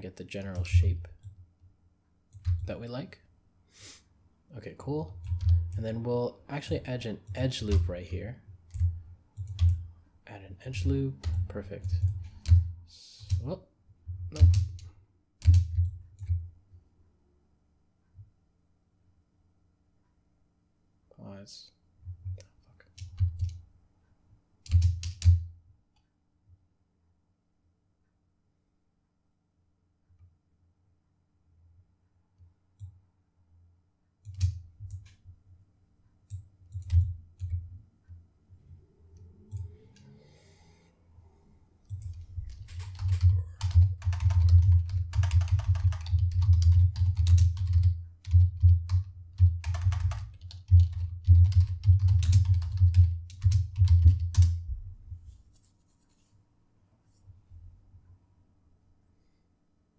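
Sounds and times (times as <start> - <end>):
typing on computer keyboard: 2.3 - 2.8, 5.2 - 5.8, 8.7 - 9.8, 11.2 - 13.6, 14.3 - 16.4, 22.9 - 23.6, 24.6 - 25.4, 34.2 - 35.2, 36.7 - 37.6, 41.9 - 54.6.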